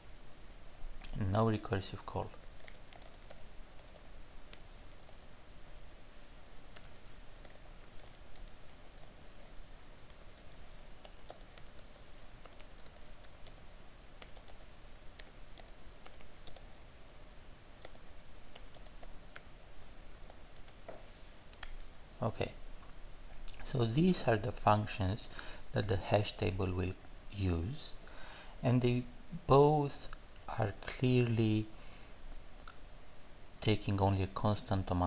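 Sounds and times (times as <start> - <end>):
typing on computer keyboard: 2.4 - 5.3, 6.6 - 9.5, 10.1 - 13.6, 14.2 - 16.8, 17.8 - 19.6.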